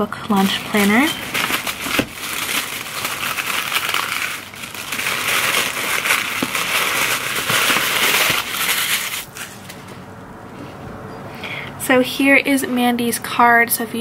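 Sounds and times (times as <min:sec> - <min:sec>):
tissue paper rustling: 0:00.3 - 0:10.0.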